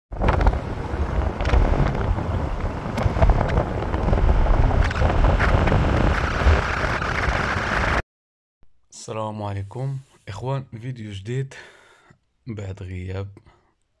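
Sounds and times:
wind buffeting microphone: 0:00.1 - 0:08.0.

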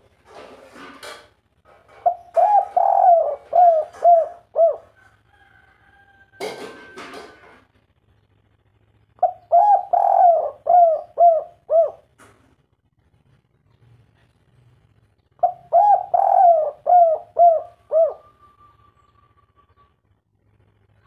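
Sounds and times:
dove cooing: 0:01.9 - 0:05.1, 0:09.2 - 0:12.2, 0:15.4 - 0:20.0.

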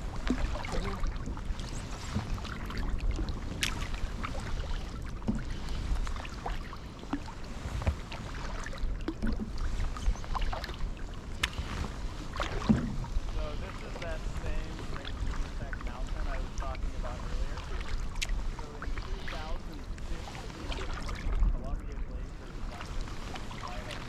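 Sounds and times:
paddle splashing in water: 0:00.0 - 0:24.0
water drips: 0:11.3 - 0:11.7
small irregular clicks: 0:11.3 - 0:11.8.

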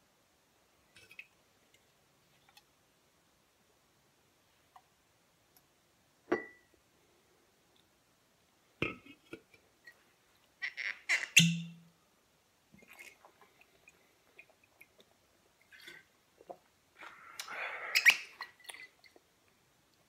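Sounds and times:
glass bottle knocks: 0:06.3 - 0:06.6.

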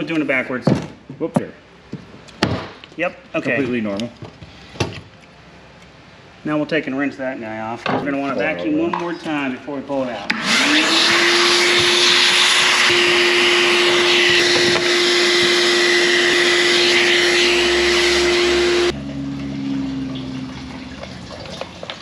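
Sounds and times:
shop vacuum running: 0:10.2 - 0:20.0
vacuum nozzle sucking dirt: 0:10.3 - 0:18.9.

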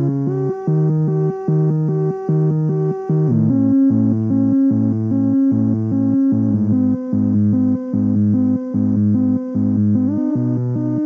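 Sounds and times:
pulsing synthesizer bass sequence: 0:00.0 - 0:11.0.

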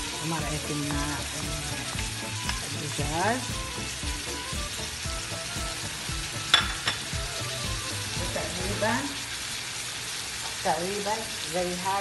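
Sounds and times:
food frying in a pan: 0:00.0 - 0:12.0
spoon knocking against pan: 0:06.4 - 0:07.2.

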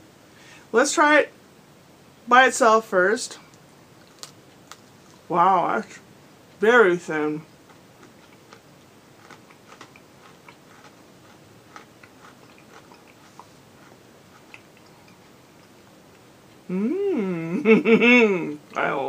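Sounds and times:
person chewing cookie: 0:03.9 - 0:05.3, 0:07.5 - 0:16.8
person speaking: 0:06.6 - 0:07.5, 0:16.7 - 0:19.0.

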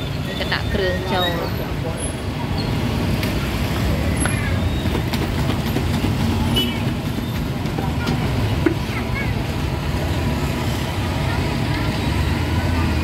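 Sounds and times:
distant voices: 0:00.0 - 0:13.0
low traffic rumble: 0:00.0 - 0:13.0.

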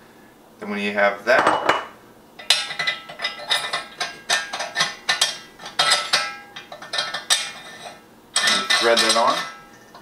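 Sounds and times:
metal clicks and scrapes: 0:02.4 - 0:10.0.

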